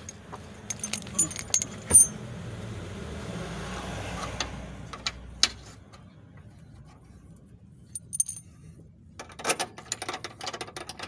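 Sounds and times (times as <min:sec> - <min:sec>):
metal bolts clinking: 0:00.0 - 0:02.2, 0:07.9 - 0:08.6
low vehicle hum: 0:00.0 - 0:09.4.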